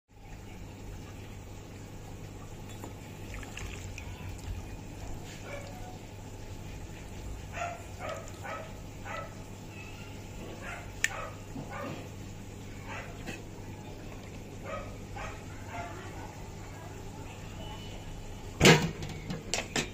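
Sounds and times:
dog barking: 5.3s - 6.0s, 7.5s - 9.4s, 10.6s - 12.1s, 12.8s - 13.4s, 14.6s - 16.4s.

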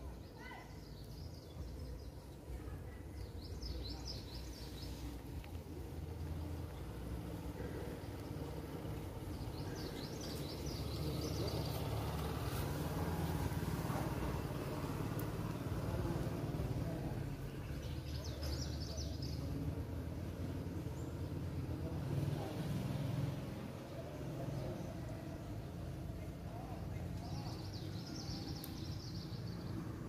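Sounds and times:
low motor rumble: 1.2s - 30.0s
bird chirping: 7.6s - 12.9s.

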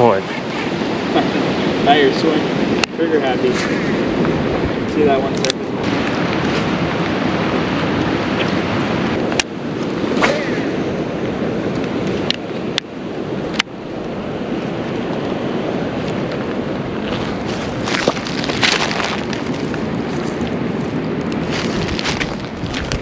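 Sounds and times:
wind buffeting microphone: 0.0s - 23.0s
rustling: 17.0s - 23.0s.

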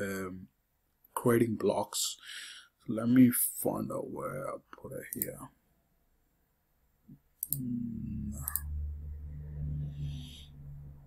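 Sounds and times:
computer mouse clicks: 7.4s - 7.7s, 8.3s - 8.7s
low hum: 7.4s - 11.0s.

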